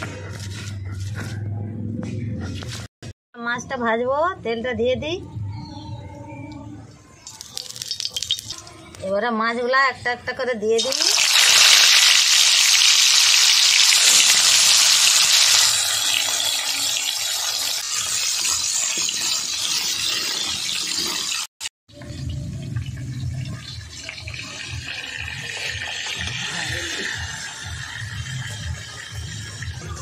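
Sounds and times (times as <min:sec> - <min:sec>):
fish sizzling in hot oil: 0:07.5 - 0:08.5, 0:10.8 - 0:21.5, 0:22.9 - 0:30.0.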